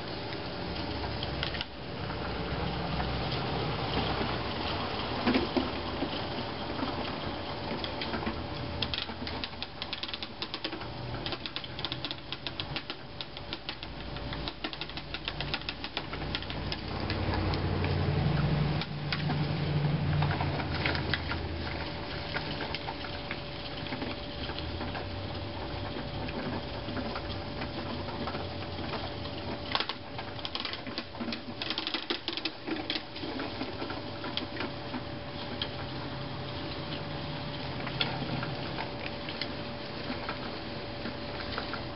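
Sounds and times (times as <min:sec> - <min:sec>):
seed spreader ticking rapidly: 0:03.0 - 0:23.0.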